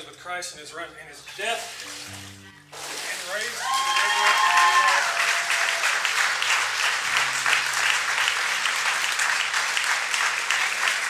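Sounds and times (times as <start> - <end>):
large audience applauding: 2.7 - 11.0.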